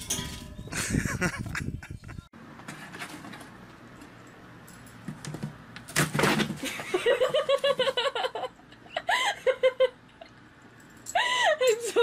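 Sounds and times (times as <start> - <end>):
person laughing: 0.7 - 2.3, 6.6 - 10.3.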